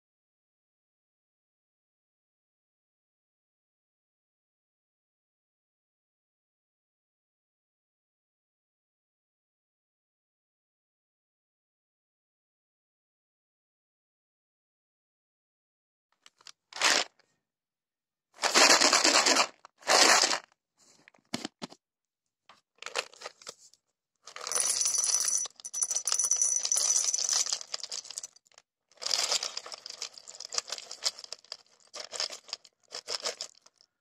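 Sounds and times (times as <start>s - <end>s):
peanuts rattling being poured: 16.8s - 17.1s, 18.4s - 20.4s, 24.3s - 33.8s.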